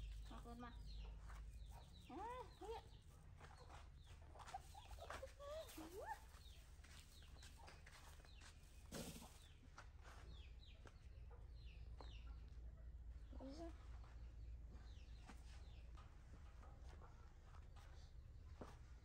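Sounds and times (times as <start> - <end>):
animal chirps and clucks: 0.0 - 16.4.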